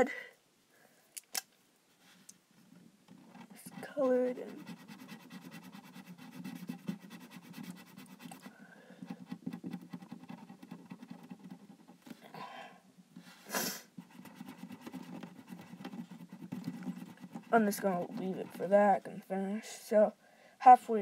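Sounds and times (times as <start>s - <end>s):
marker scribbling on tape: 3.1s - 12.1s, 13.9s - 19.2s
breathing close to microphone: 8.5s - 9.2s, 20.2s - 20.6s.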